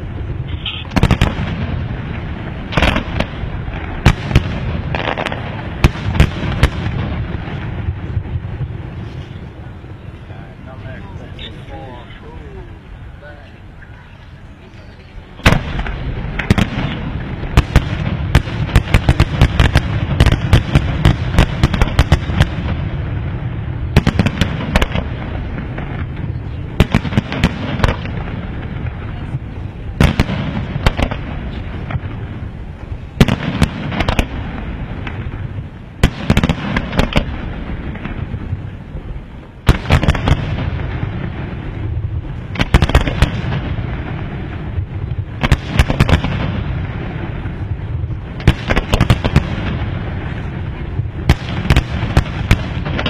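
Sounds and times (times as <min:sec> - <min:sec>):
low rumble: 0:00.0 - 0:36.0
fireworks bursting: 0:00.0 - 0:53.0.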